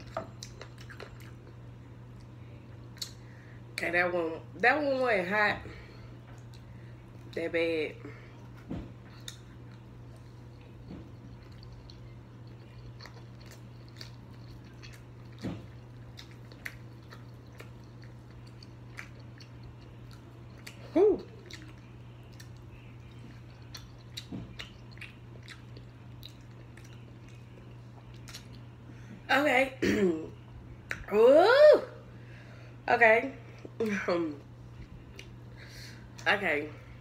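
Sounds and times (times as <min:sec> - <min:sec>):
person chewing chicken wings: 0:00.0 - 0:03.2, 0:08.4 - 0:28.8
steady low hum: 0:00.0 - 0:37.0.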